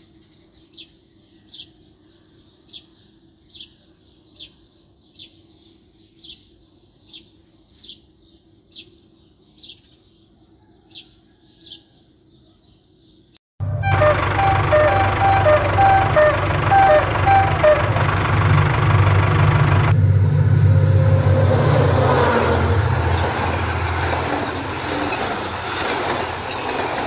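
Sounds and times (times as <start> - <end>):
bird chirping: 0.0 - 13.4.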